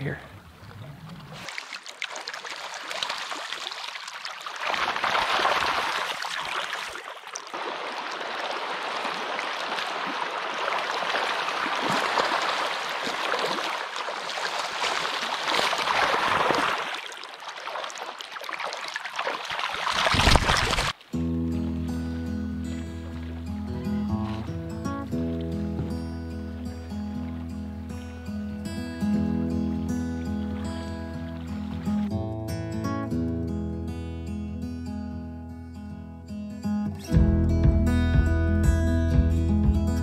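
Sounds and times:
fish splashing in water: 1.0 - 21.0
river gurgling over stones: 1.3 - 21.0.

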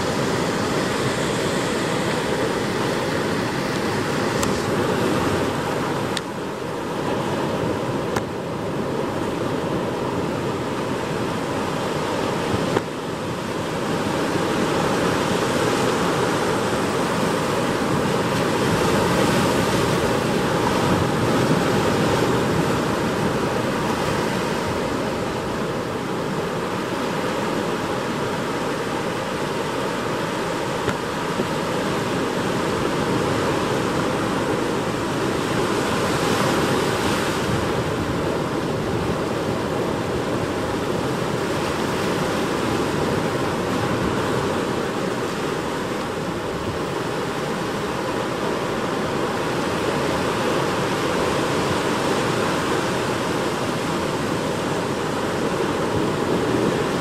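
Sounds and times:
surf breaking over rocks: 0.0 - 57.0.

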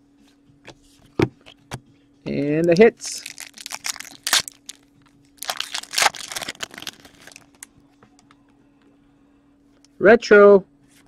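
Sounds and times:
plastic card sleeve crinkling: 2.7 - 4.8, 5.4 - 7.7.

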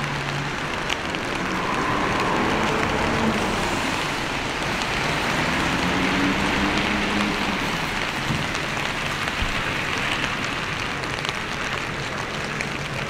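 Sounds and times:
passing vehicle engine: 0.0 - 8.6
steady rain hiss: 0.0 - 13.0.

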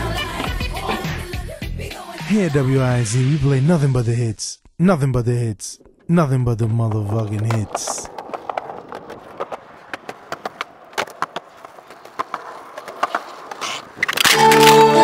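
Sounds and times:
skateboard wheels rolling on concrete: 0.0 - 1.6, 6.6 - 15.0
skateboard clacking on ground: 7.2 - 15.0
music with plucked notes: 14.3 - 15.0.

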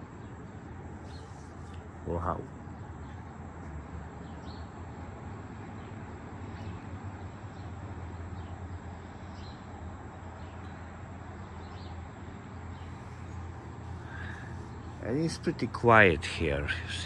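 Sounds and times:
birds chirping: 0.0 - 17.0
distant highway traffic rumble: 0.0 - 17.0.

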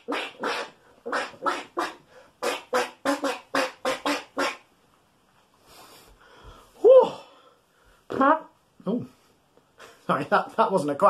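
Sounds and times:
man imitating duck quacks: 0.0 - 4.6.

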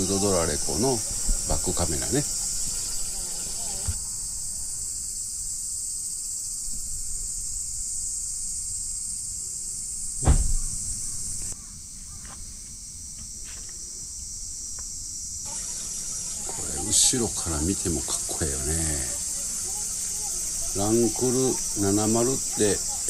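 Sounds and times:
high-pitched insect drone: 0.0 - 23.0
vehicle door shutting: 10.2 - 11.0.

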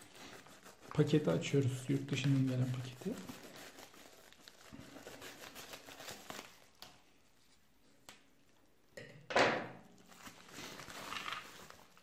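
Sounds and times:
plastic bag crinkling: 10.0 - 12.0.

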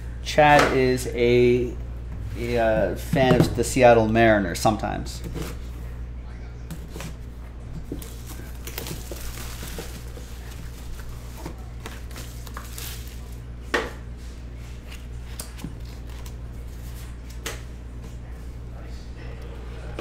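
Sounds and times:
steady low hum: 0.0 - 20.0
shrink wrap crinkling: 7.9 - 13.4.

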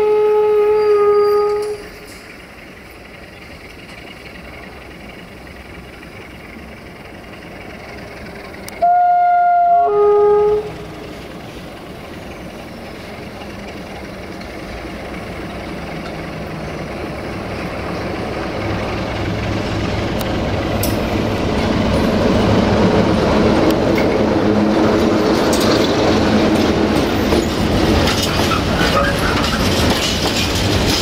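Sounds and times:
train horn two notes: 0.0 - 1.9, 8.8 - 11.0
locomotive engine and wheel rumble: 0.0 - 31.0.

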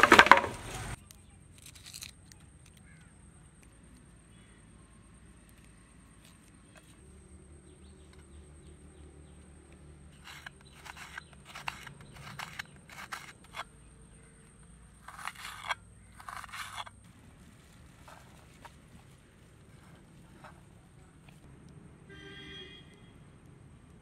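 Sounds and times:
knife cutting onion on a plate: 15.0 - 16.9.

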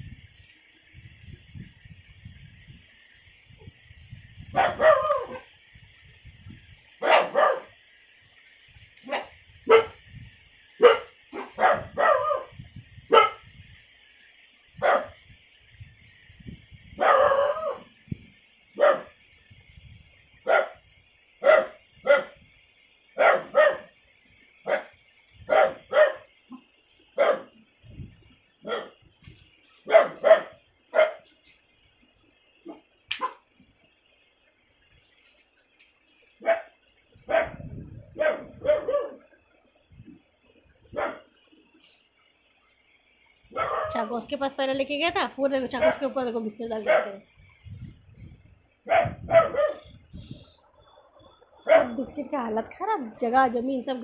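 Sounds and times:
puppy barking: 4.6 - 5.5, 7.0 - 7.8, 9.0 - 10.0, 10.8 - 13.4, 14.8 - 15.2, 17.0 - 17.9, 18.8 - 19.2, 20.5 - 20.8, 21.4 - 22.4, 23.2 - 23.9, 24.7 - 24.9, 25.5 - 26.6, 27.2 - 27.6, 28.6 - 29.0, 29.8 - 31.3, 36.4 - 37.6, 38.2 - 39.2, 40.9 - 41.3, 43.5 - 44.0, 45.8 - 46.1, 46.8 - 47.2, 48.9 - 50.0, 51.6 - 52.2.

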